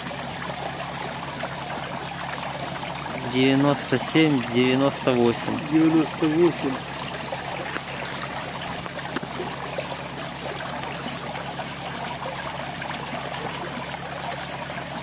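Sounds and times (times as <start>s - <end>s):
net splashing through water: 0.0s - 15.0s
water pouring into plastic barrel: 0.0s - 15.0s.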